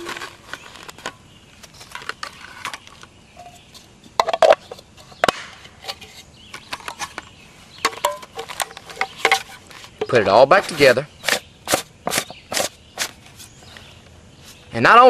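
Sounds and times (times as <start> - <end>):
plastic bags crinkling: 0.0 - 2.9.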